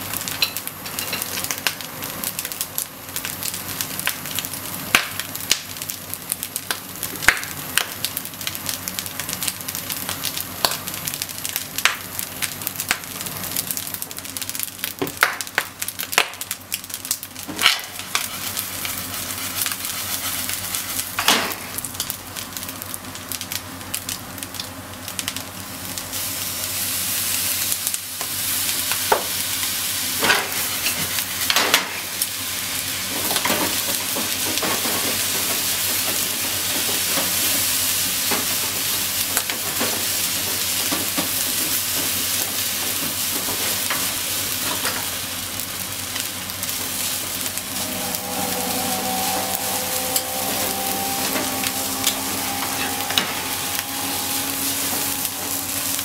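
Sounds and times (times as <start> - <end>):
rice sizzling in frying pan: 0.0 - 56.0
spatula scraping pan: 47.5 - 56.0.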